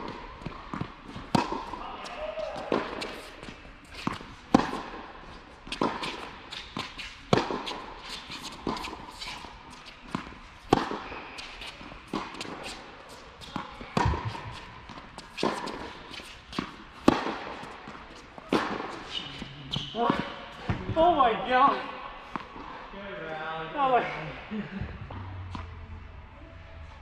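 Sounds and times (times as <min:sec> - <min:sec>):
racket hitting tennis ball: 0:00.0 - 0:20.9
ball bouncing: 0:13.9 - 0:15.9.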